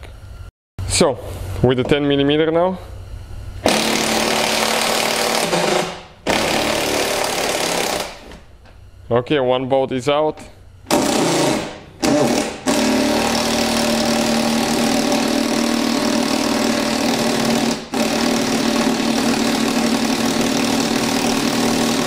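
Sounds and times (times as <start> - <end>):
cordless power driver running: 3.6 - 8.2, 10.9 - 22.0.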